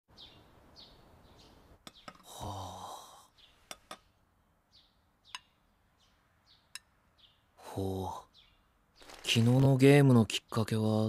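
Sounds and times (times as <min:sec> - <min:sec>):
bird chirps: 0:00.1 - 0:02.5, 0:03.2 - 0:11.0
man sighing: 0:02.2 - 0:03.4.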